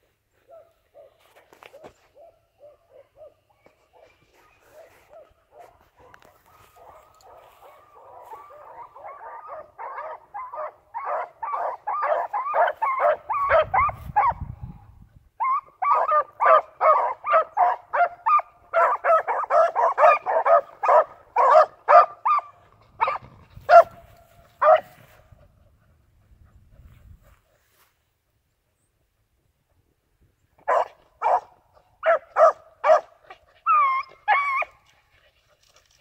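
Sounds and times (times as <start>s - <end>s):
dog barking: 0.5s - 14.4s, 15.4s - 25.0s, 30.6s - 33.2s.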